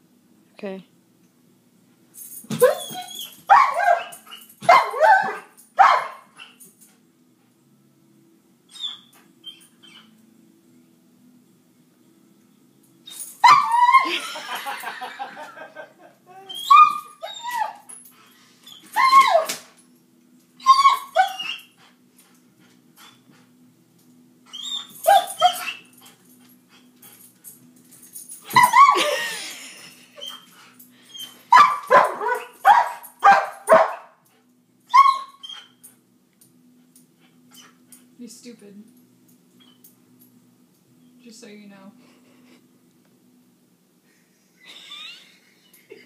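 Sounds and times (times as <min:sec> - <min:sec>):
dog barking and whining: 0:02.5 - 0:06.7, 0:08.7 - 0:10.2, 0:13.1 - 0:14.2, 0:16.3 - 0:18.0, 0:18.6 - 0:19.8, 0:20.6 - 0:21.9, 0:24.5 - 0:26.2, 0:28.4 - 0:29.2, 0:30.2 - 0:34.2, 0:34.9 - 0:35.9.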